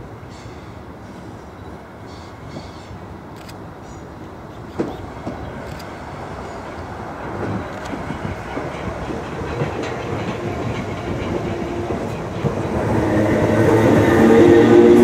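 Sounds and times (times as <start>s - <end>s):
train wheels rumbling on rails: 0.0s - 15.0s
wheels clicking at rail joints: 2.1s - 15.0s.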